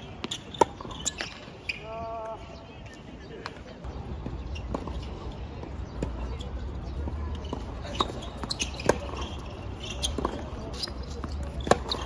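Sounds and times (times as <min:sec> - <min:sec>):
tennis ball bouncing: 0:07.4 - 0:12.0
racket hitting ball: 0:11.2 - 0:12.0.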